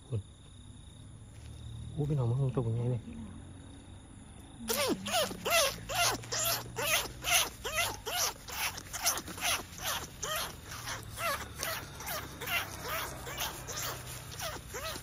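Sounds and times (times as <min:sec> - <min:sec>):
squeaky rat-calling squeals: 0:04.7 - 0:15.0.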